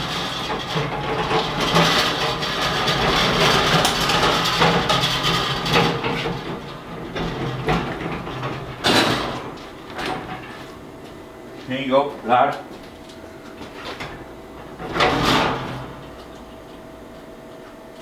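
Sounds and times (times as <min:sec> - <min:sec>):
castors rumbling: 0:00.0 - 0:11.4.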